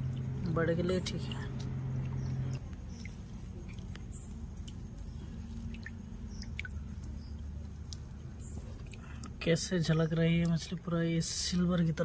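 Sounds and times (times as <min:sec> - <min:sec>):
hand washing fish in water: 0:00.0 - 0:12.0
water splashes and drips: 0:01.3 - 0:12.0.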